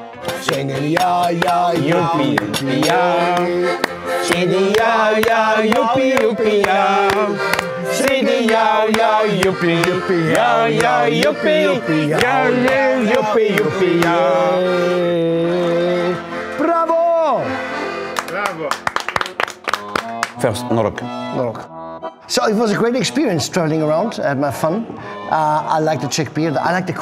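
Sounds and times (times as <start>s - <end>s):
person singing: 0.0s - 16.4s
accordion playing folk tune: 0.0s - 27.0s
hand-clapping on the beat: 0.2s - 14.3s, 18.1s - 20.5s.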